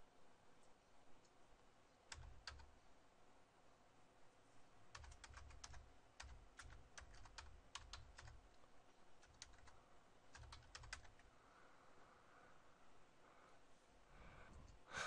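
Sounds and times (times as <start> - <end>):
keyboard keys clicking: 2.1 - 2.7, 4.9 - 8.4, 9.2 - 11.2.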